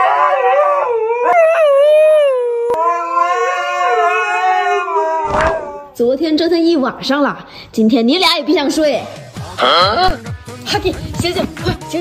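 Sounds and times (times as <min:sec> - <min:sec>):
dogs howling: 0:00.0 - 0:06.0.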